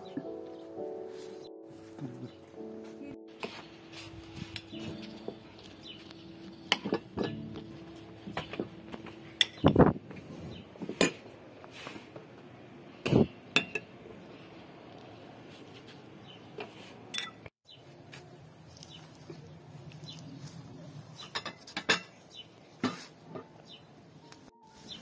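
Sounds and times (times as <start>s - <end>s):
dishes and utensils clinking: 6.7s - 10.0s, 10.8s - 11.3s, 13.1s - 13.9s, 17.1s - 17.5s, 21.2s - 22.2s.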